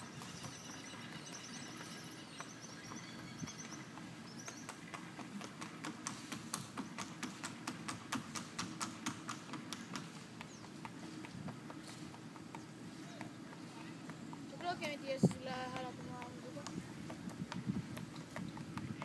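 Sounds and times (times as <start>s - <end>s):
horse hooves clip-clopping: 0.0s - 19.0s.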